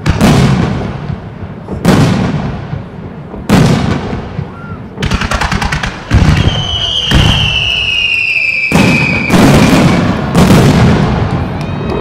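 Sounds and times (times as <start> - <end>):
firework booms: 0.0 - 12.0
firework crackling: 0.0 - 12.0
falling firework whistle: 4.4 - 4.9, 6.1 - 12.0.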